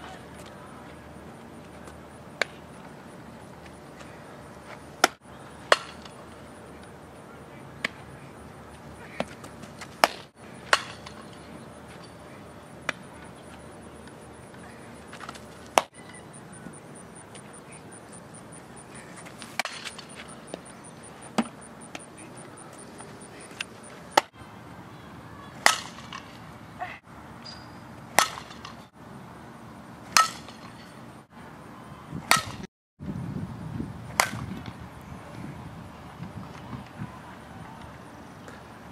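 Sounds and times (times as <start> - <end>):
softball striking glove and bat: 5.0 - 6.2, 9.0 - 12.2, 12.8 - 13.6, 15.1 - 16.2, 19.2 - 22.1, 25.6 - 26.4, 28.2 - 28.9, 30.1 - 30.8, 32.3 - 32.7, 34.1 - 34.8.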